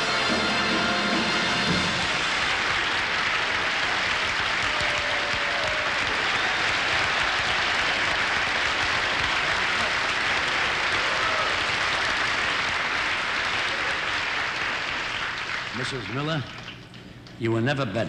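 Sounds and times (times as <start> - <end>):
audience applauding: 0.0 - 17.1.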